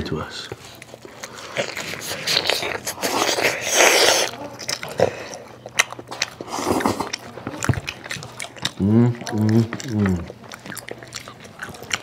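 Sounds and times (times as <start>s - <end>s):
spaghetti slurping and chewing: 0.6s - 12.0s.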